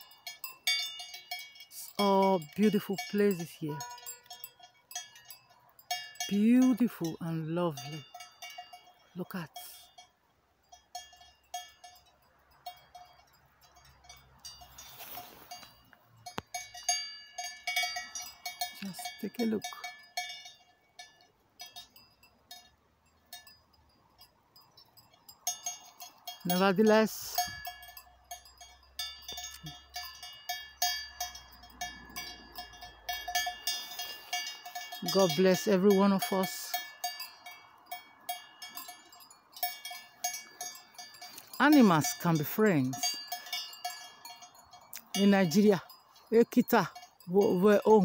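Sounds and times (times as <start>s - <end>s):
sheep bells clanking: 0.0s - 48.0s.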